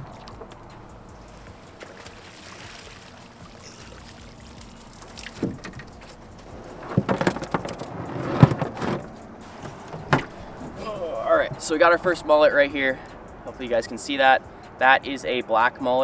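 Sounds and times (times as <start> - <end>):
net knocking against boat hull: 5.2 - 6.2, 6.8 - 10.5.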